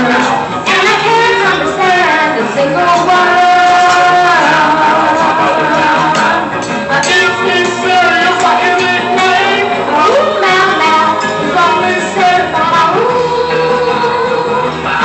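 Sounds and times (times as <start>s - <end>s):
boy singing into a microphone: 0.0s - 15.0s.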